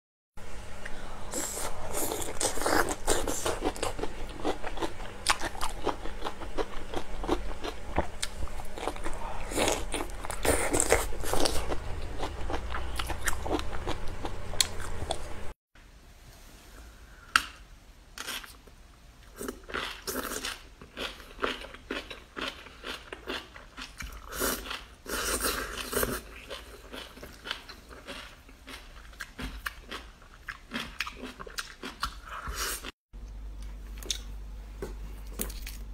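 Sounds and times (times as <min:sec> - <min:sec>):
crunching bites and chewing: 0:33.6 - 0:35.9.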